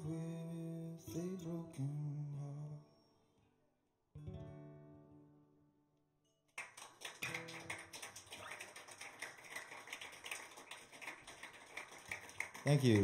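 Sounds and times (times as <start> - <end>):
audience applause: 6.6 - 13.0.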